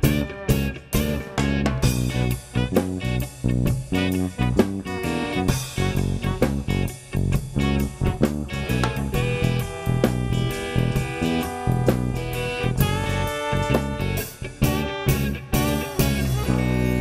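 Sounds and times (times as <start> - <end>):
bass guitar: 0.0 - 17.0
drums: 0.0 - 17.0
trombone: 0.0 - 17.0
saxophone: 7.6 - 17.0
rattling hand percussion: 8.6 - 17.0.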